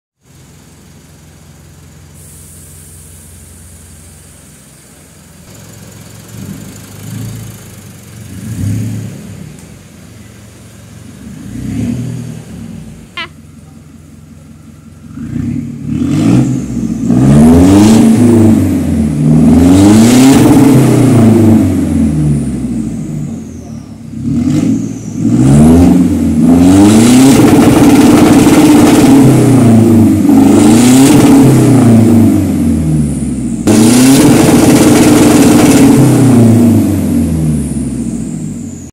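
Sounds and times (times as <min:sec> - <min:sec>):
diesel engine idling and revving: 0:00.1 - 0:38.9.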